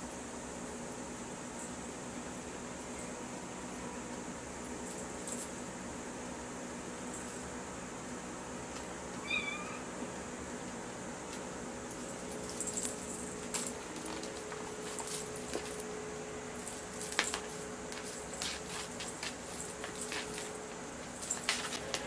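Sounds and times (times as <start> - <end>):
faint steady hum: 0.0 - 22.0
light clicks and rustles of cat toy: 16.6 - 22.0.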